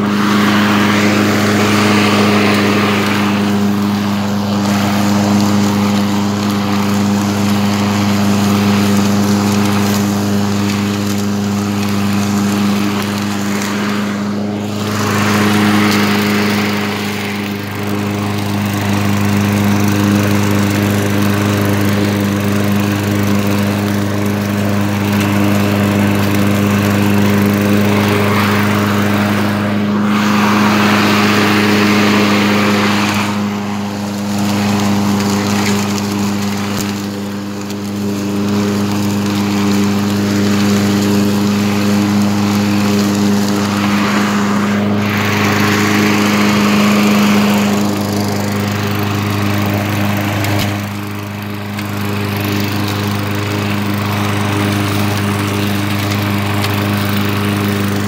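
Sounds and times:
grass cutting hiss: 0.0s - 58.0s
lawn mower engine running: 0.0s - 58.0s.

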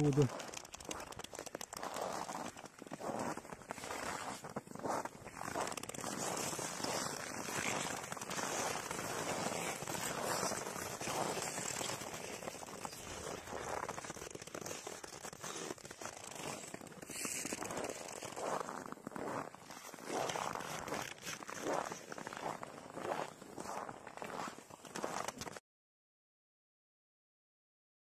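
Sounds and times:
footsteps crunching on snow: 0.0s - 25.6s.

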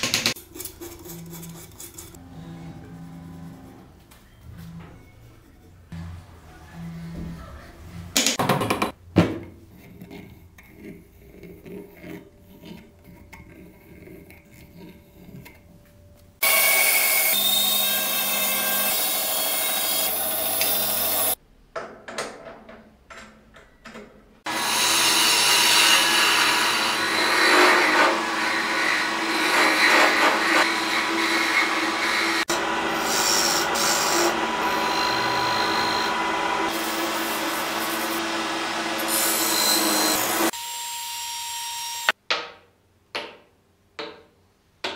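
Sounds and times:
loud power tool: 16.4s - 21.4s, 24.5s - 42.2s
wood lathe spinning and cutting: 16.4s - 21.4s, 24.5s - 40.6s.

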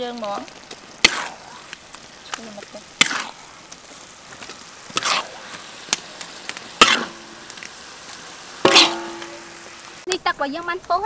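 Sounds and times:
paste sizzling in wok: 0.0s - 11.0s
metal spatula scraping pan: 4.9s - 5.6s, 6.8s - 7.4s, 8.6s - 9.8s.

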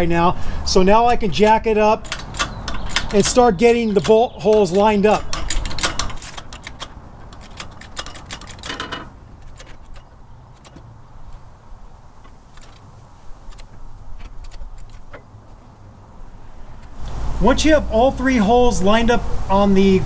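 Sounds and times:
metallic clicks of hydraulic jack: 1.0s - 11.5s, 12.2s - 15.3s.

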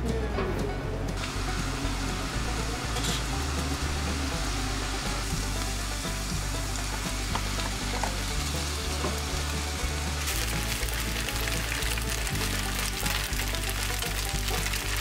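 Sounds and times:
food sizzling in a frying pan: 1.2s - 15.0s.

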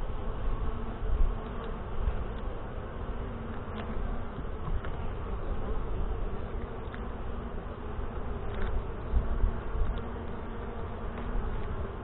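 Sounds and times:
bees buzzing: 0.0s - 12.0s
hive tool and frames clicking: 1.4s - 2.6s, 3.4s - 5.0s, 8.3s - 12.0s.

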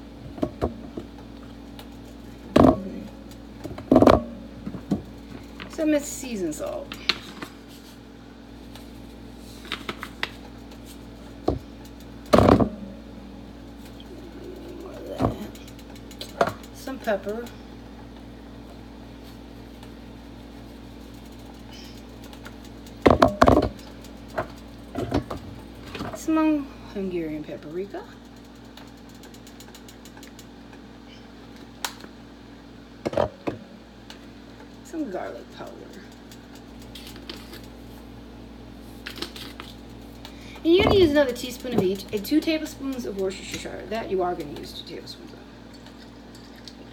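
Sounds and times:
low hum: 0.0s - 27.8s
containers knocking: 2.5s - 5.0s.

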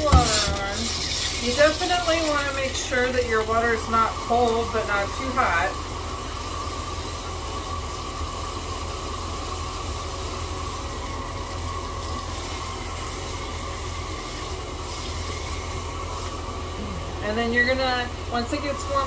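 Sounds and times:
tap water running into sink: 0.0s - 7.8s.

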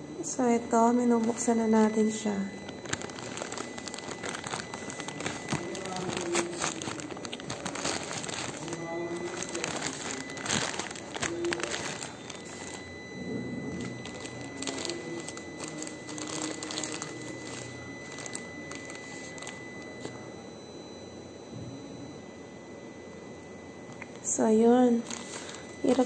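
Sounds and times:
plastic bag crinkling and tearing: 2.6s - 12.9s, 13.7s - 20.2s, 25.0s - 26.0s.

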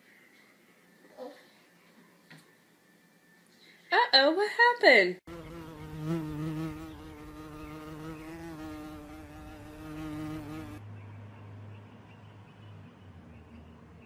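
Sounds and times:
flying insect buzzing: 5.3s - 10.8s.

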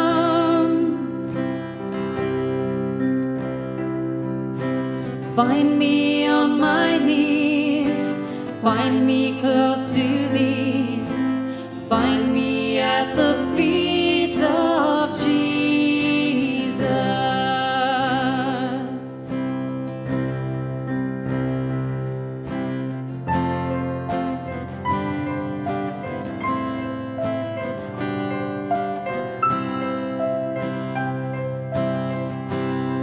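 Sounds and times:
piano: 0.0s - 33.0s
strummed acoustic guitar: 0.0s - 33.0s
women singing together: 5.4s - 11.2s, 11.8s - 19.0s.

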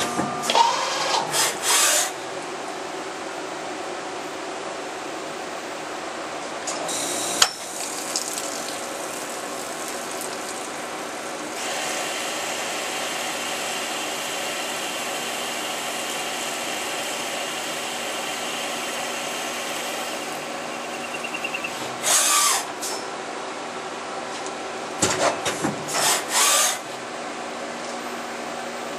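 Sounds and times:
machine drone with whining tones: 20.2s - 22.6s.

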